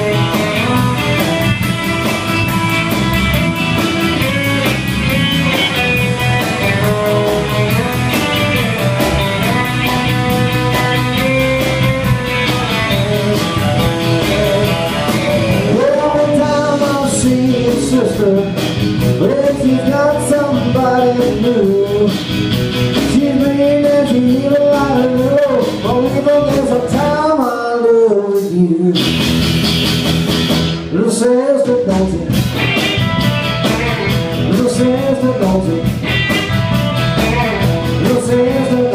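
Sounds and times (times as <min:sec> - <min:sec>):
live rock band playing: 0:00.0 - 0:38.9
man singing lead vocal: 0:12.9 - 0:29.2, 0:30.9 - 0:32.4, 0:34.3 - 0:36.0, 0:37.2 - 0:38.9.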